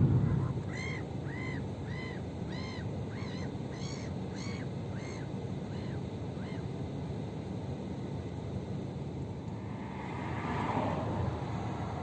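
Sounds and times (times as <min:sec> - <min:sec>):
gulls calling: 0:00.0 - 0:06.8
steady low hum: 0:00.0 - 0:12.0.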